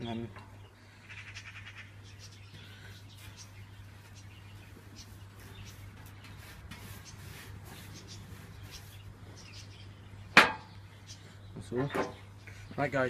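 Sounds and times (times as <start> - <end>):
paintbrush brushing on metal: 3.2 - 9.6.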